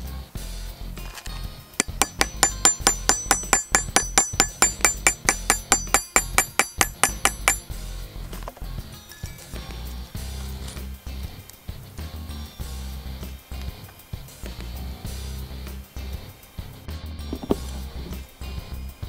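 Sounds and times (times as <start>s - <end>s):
hammer tapping on steel: 1.8s - 7.7s.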